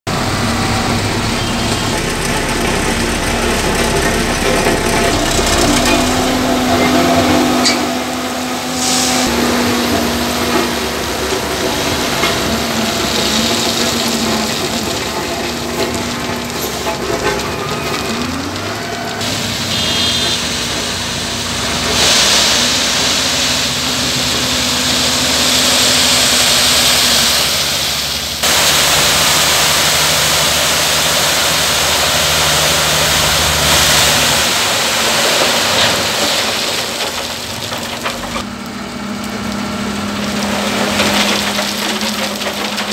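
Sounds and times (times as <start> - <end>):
road roller diesel engine: 0.0 - 42.9
tipper truck engine running: 0.0 - 42.9
gravel sliding out: 8.8 - 42.9.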